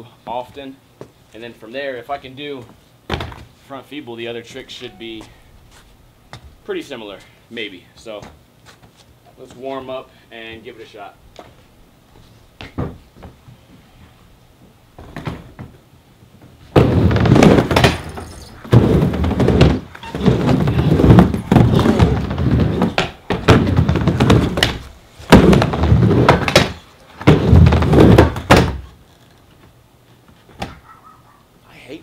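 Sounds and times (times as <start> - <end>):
skateboard wheels rolling on ramp: 16.6 - 28.9
skateboard knocking on coping: 16.7 - 28.8.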